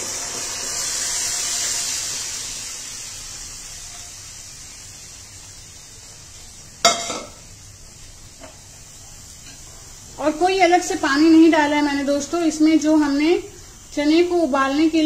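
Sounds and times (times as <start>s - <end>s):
frying spices sizzling: 0.0s - 15.0s
sharp metallic clank: 6.8s - 7.4s.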